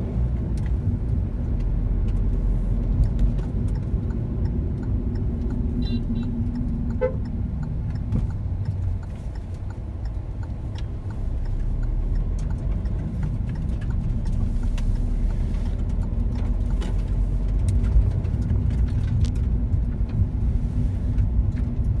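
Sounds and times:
car engine and tyre rumble: 0:00.0 - 0:22.0.

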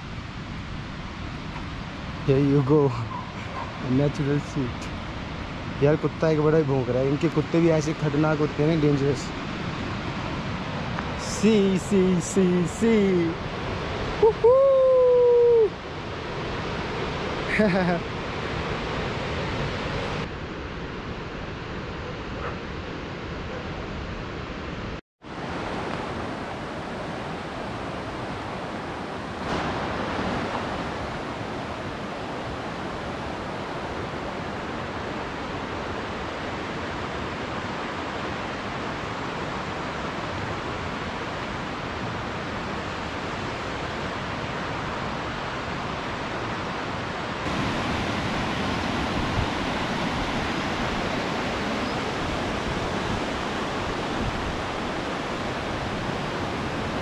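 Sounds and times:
river rushing over rocks: 0:25.3 - 0:57.0.

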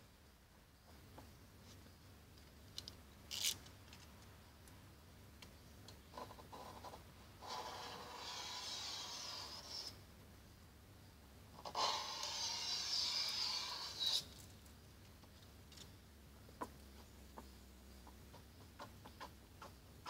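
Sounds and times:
short sharp scrape: 0:07.4 - 0:10.0, 0:11.6 - 0:14.4.

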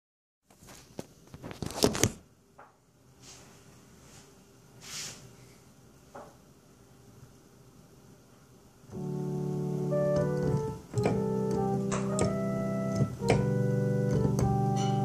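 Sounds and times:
short soft hisses: 0:04.8 - 0:05.5.

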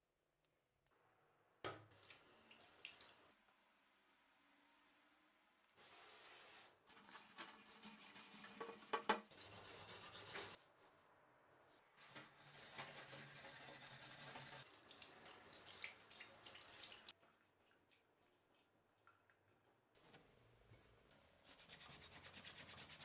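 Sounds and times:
scrubbing metal in a sink: 0:06.9 - 0:10.6, 0:12.0 - 0:14.6.

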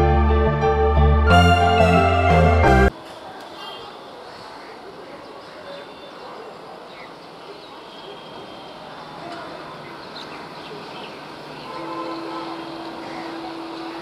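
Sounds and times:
distant train rushing: 0:11.8 - 0:14.0.

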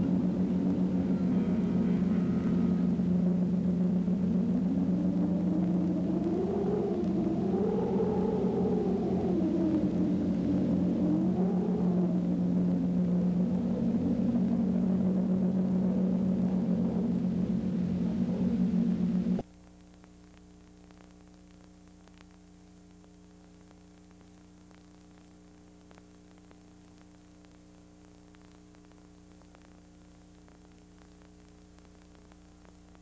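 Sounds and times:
loud low drone with rumble: 0:00.0 - 0:19.4
faint electrical hum and hiss: 0:00.0 - 0:33.0.

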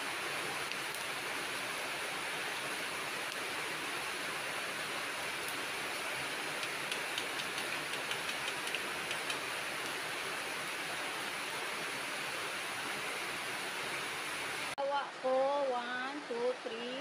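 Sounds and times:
small crackles and ticks: 0:06.5 - 0:10.0.

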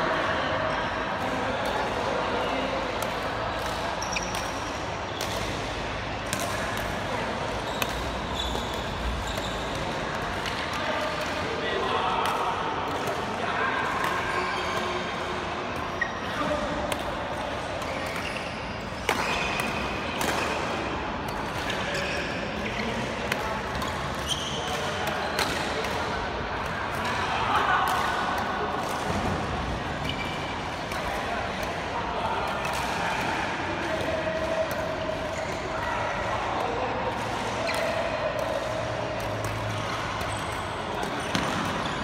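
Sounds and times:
indoor hall ambience: 0:00.0 - 0:42.0
rackets hitting shuttlecock: 0:02.9 - 0:11.5, 0:15.8 - 0:27.2, 0:36.5 - 0:42.0
shoes squeaking on court floor: 0:04.0 - 0:05.5, 0:07.6 - 0:09.9, 0:15.9 - 0:16.5, 0:17.8 - 0:19.9, 0:21.3 - 0:23.1, 0:23.8 - 0:25.6, 0:30.0 - 0:30.6, 0:40.2 - 0:42.0.

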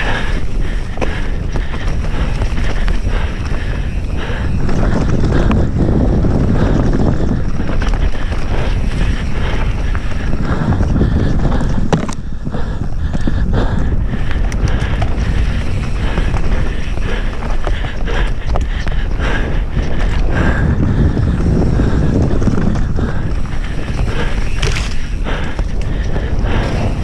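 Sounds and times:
bike rattling over bumps: 0:00.0 - 0:27.0
wind buffeting microphone: 0:00.0 - 0:27.0
tyres rumbling over dirt: 0:14.2 - 0:27.0.

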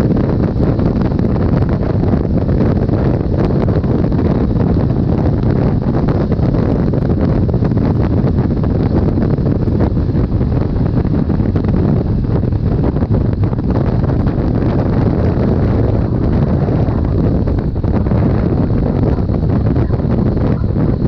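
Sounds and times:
motorcycle engine running: 0:00.0 - 0:21.0
wind buffeting microphone: 0:00.0 - 0:21.0.

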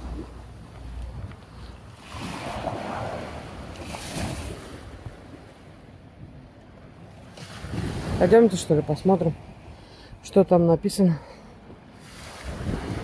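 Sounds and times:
waves washing on sandy beach: 0:01.8 - 0:05.6, 0:07.2 - 0:09.7, 0:12.0 - 0:13.0
wind on microphone: 0:07.4 - 0:08.5, 0:12.1 - 0:13.0.

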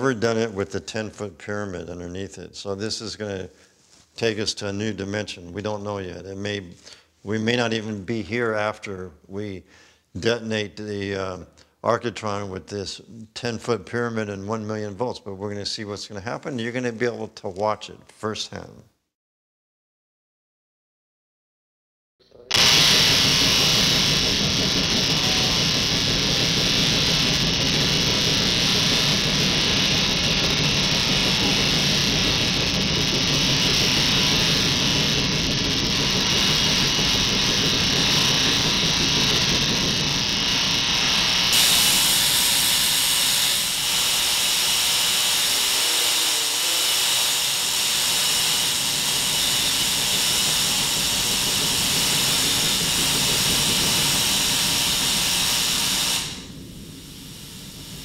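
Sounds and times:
tesla coil hissing buzz: 0:22.4 - 0:58.0
low rumble: 0:22.5 - 0:41.5, 0:48.8 - 0:58.0.

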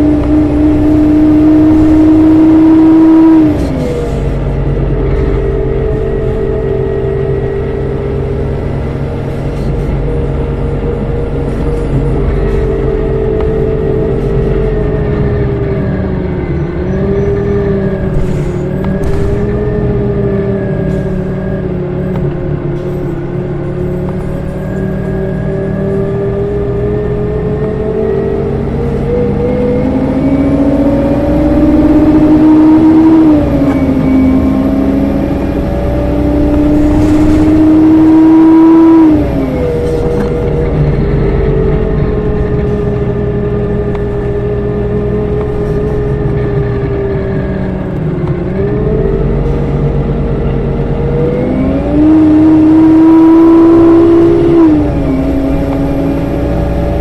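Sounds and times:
bus engine accelerating: 0:00.0 - 0:57.0.

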